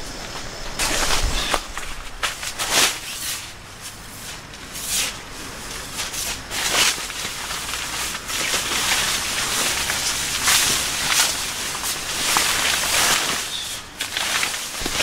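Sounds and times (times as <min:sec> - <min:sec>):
tent fabric rustling: 0:00.0 - 0:15.0.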